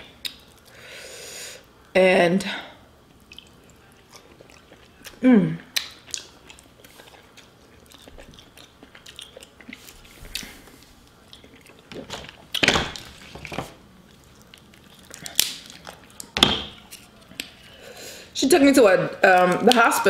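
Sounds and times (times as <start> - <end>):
wet chewing: 3.2 - 13.1, 14.0 - 17.8
crab leg snapping: 15.1 - 17.5.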